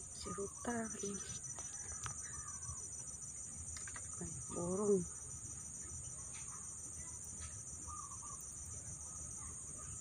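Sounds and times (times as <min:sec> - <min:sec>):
crickets or cicadas droning: 0:00.0 - 0:10.0
bird warbling calls: 0:07.9 - 0:08.4.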